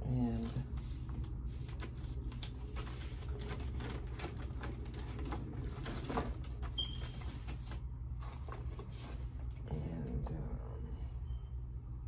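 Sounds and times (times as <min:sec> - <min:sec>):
steady low hum: 0:00.0 - 0:12.0
plastic packaging crinkling: 0:00.4 - 0:09.2.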